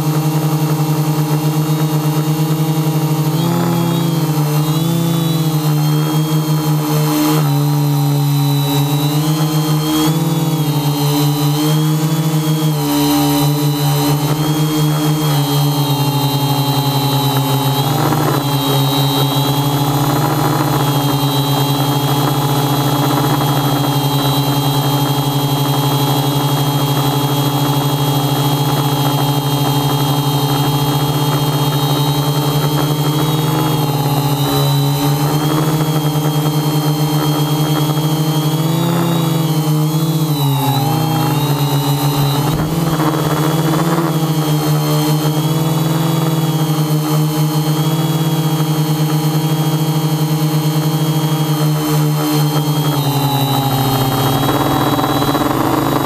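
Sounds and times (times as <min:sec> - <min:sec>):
quadcopter drone whirring: 0:00.0 - 0:56.0.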